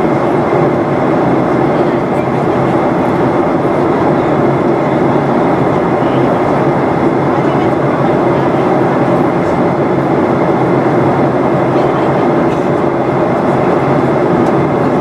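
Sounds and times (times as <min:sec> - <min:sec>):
jet engines humming: 0:00.0 - 0:15.0
rush of airflow: 0:00.0 - 0:15.0.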